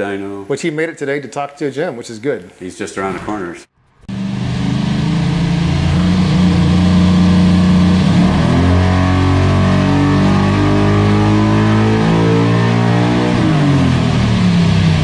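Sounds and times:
engine revving: 0:04.0 - 0:15.0.

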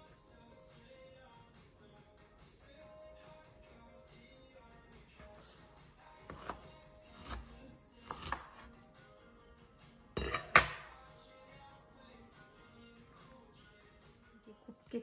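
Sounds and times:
soft background music: 0:00.0 - 0:15.0
knife slicing on cutting board: 0:06.2 - 0:08.8.

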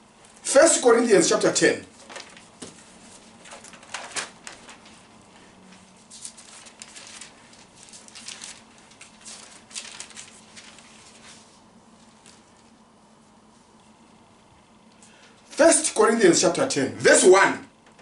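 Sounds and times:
paper pages rustling: 0:01.9 - 0:12.9.

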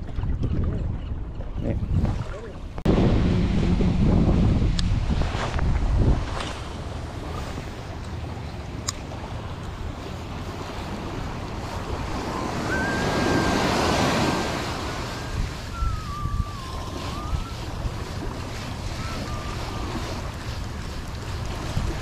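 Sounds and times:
wind buffeting microphone: 0:00.0 - 0:22.0
small waves washing on beach: 0:02.1 - 0:22.0
wavering whistle-like tone: 0:12.1 - 0:20.3.

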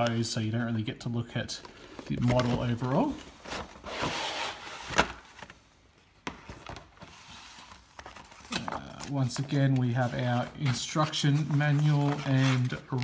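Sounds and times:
cardboard rustling and scraping: 0:01.9 - 0:05.6, 0:06.4 - 0:13.0.

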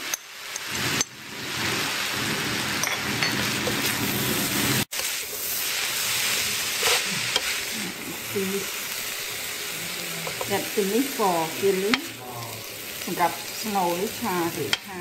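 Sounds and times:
meat sizzling in a wok: 0:00.0 - 0:15.0
spatula stirring: 0:04.9 - 0:10.8.

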